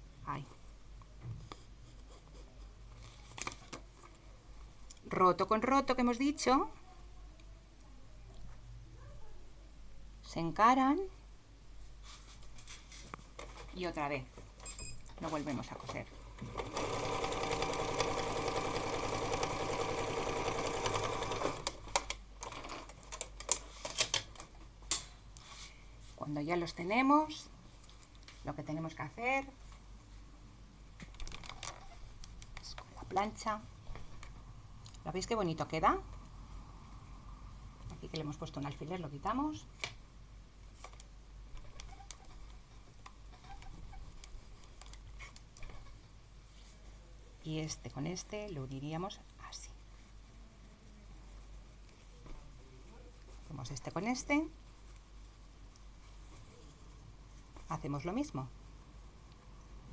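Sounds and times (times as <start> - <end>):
sewing machine running: 16.4 - 22.8
low steady hum: 31.8 - 59.9.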